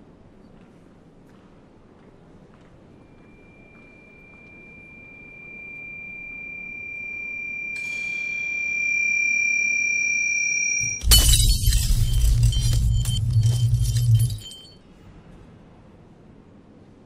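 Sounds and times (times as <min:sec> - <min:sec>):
second higher tone: 0:03.0 - 0:14.4
high ringing tone: 0:03.0 - 0:14.8.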